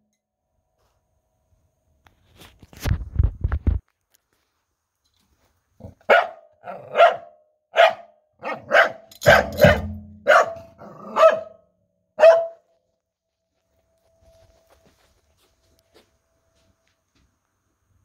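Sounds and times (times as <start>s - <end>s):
dog barking: 5.8s - 11.6s, 12.2s - 12.7s.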